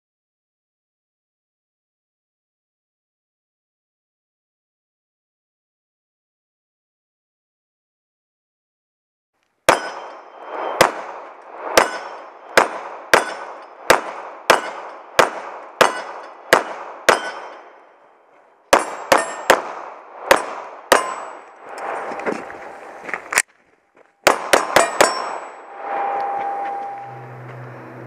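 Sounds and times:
pistol shots: 0:09.7 - 0:17.9, 0:18.7 - 0:21.6, 0:24.2 - 0:25.6.

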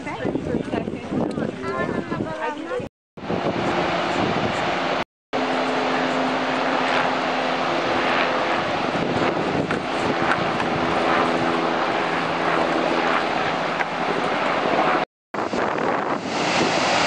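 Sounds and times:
loud rushing noise: 0:14.8 - 0:17.0.

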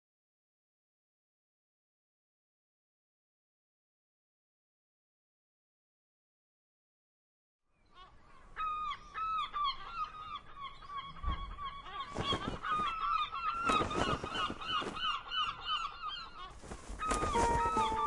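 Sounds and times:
flock of birds calling: 0:07.9 - 0:18.0.

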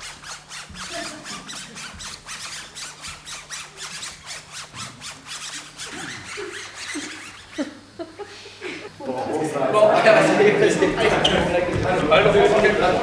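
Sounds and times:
rhythmic scratchy rubbing: 0:00.0 - 0:08.3, 0:10.4 - 0:13.0.

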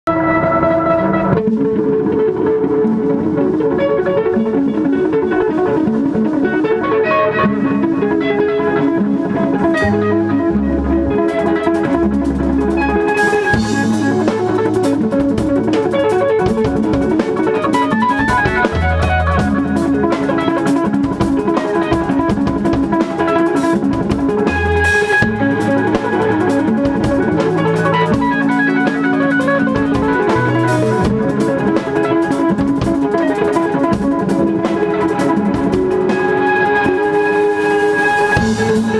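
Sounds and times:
clean electric guitars: 0:00.1 - 0:38.9
drum kit with cymbals: 0:07.9 - 0:38.9.

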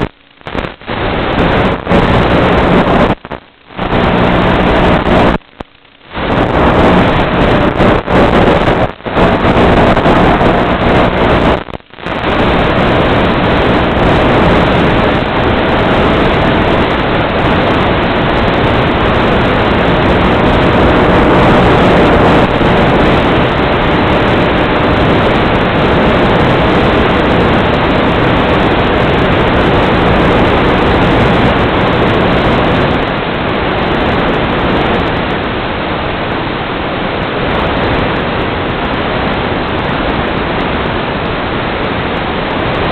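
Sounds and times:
wind rush: 0:00.0 - 0:42.9
faint motor hum: 0:01.4 - 0:32.8.

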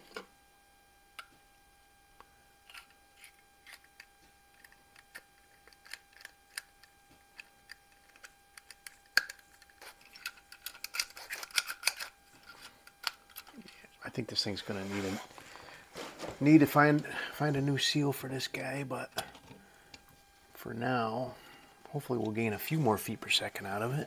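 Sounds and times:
faint steady hum: 0:00.0 - 0:24.0
small parts clicking and tapping: 0:02.7 - 0:13.9.

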